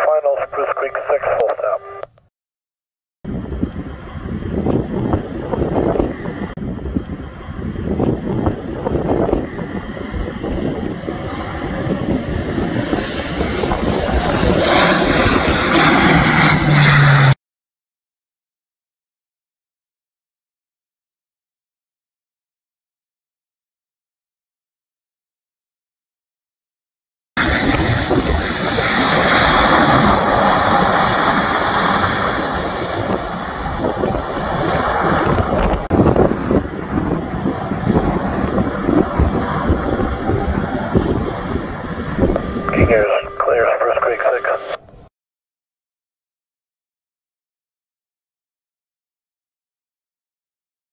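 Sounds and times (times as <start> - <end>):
turboprop engines and propellers: 0.0 - 2.3, 3.2 - 17.4, 27.4 - 45.1.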